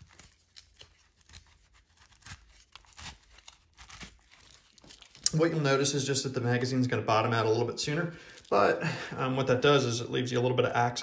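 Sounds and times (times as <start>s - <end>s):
rustling and scraping of nylon pouch: 0.0s - 5.2s.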